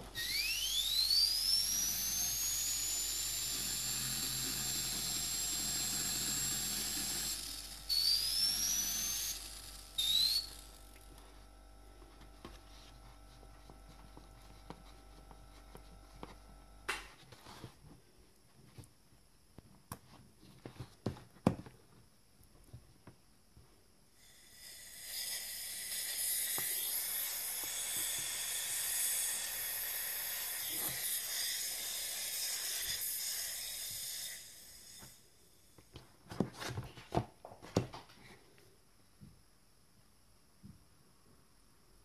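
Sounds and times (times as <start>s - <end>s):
airbrush turbine whine: 0.0s - 16.7s, 24.3s - 35.2s
air hissing: 24.2s - 35.2s.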